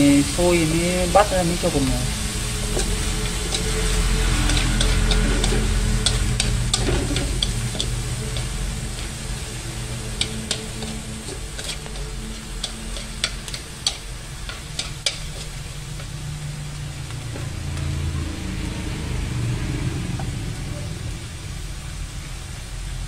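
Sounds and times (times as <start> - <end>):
meat sizzling in a wok: 0.0 - 23.0
steady low hum: 0.0 - 23.0
chopsticks clicking on metal: 10.2 - 15.6.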